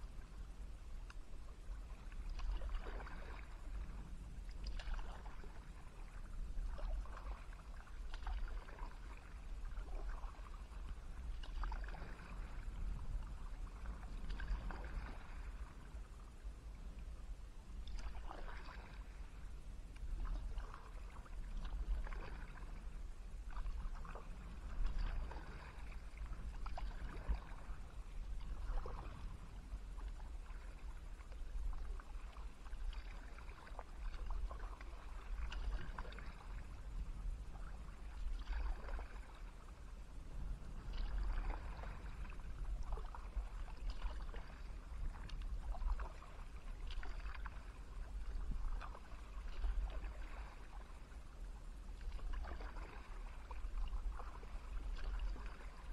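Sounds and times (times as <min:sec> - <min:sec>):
kayak paddle splashing: 0:00.0 - 0:55.9
water dripping off paddle: 0:10.8 - 0:12.6.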